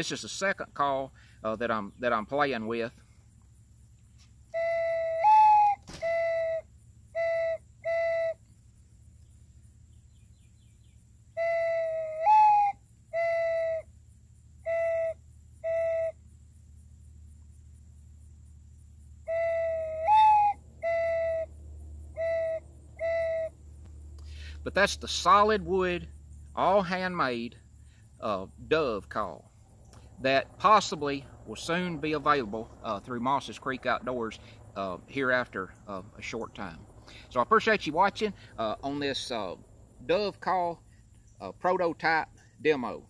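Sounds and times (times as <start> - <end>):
wooden dove call whistle cooing: 4.5 - 8.5, 11.3 - 13.9, 14.6 - 16.2, 19.2 - 21.5, 22.1 - 23.6.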